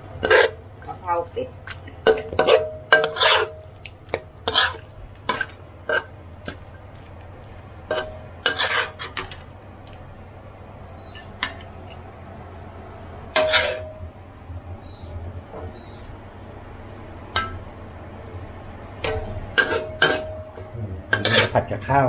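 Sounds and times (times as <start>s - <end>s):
low steady hum: 0.0s - 22.0s
metal spatula scraping pan: 0.2s - 0.6s, 2.0s - 3.7s, 4.4s - 6.6s, 7.9s - 9.4s, 13.3s - 14.0s, 19.1s - 20.5s, 21.1s - 21.7s.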